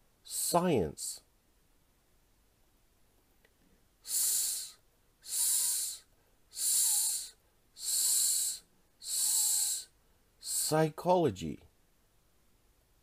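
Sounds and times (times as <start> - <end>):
man hissing s sound: 0.2 - 1.2, 4.0 - 11.1.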